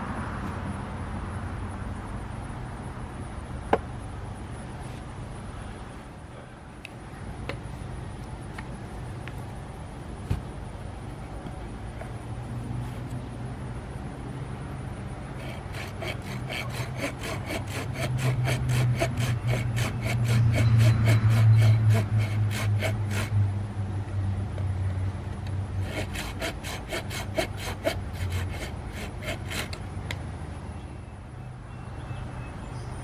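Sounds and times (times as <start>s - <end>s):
hand saw cutting wood: 15.3s - 23.4s, 25.8s - 29.8s.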